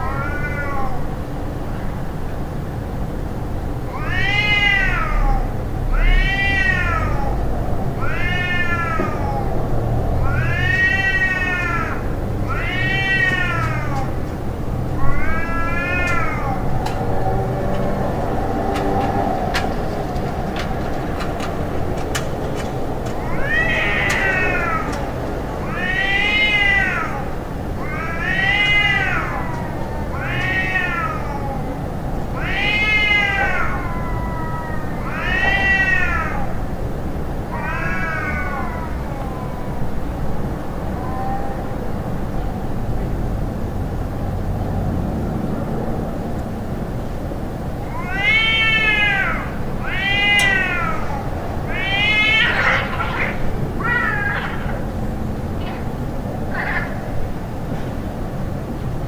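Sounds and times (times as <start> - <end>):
cat yowling: 0.0 - 1.1, 3.9 - 14.3, 15.0 - 17.4, 23.2 - 36.6, 37.4 - 40.0, 40.8 - 42.0, 47.8 - 55.8, 56.4 - 57.3.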